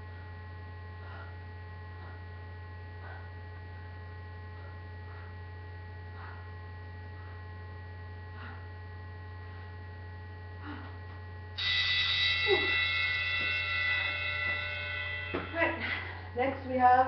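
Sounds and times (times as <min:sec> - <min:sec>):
electrical mains hum: 0:00.0 - 0:17.0
soft breaths: 0:00.1 - 0:09.9
high-pitched ringing tone: 0:11.6 - 0:16.7.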